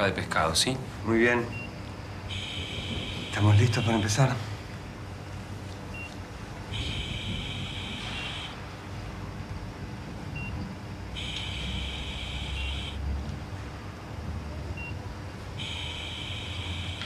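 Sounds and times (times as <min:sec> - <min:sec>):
low steady hum: 0:00.0 - 0:17.0
long high monitor beep: 0:02.3 - 0:04.4, 0:06.7 - 0:08.6, 0:11.2 - 0:13.0, 0:15.6 - 0:17.0.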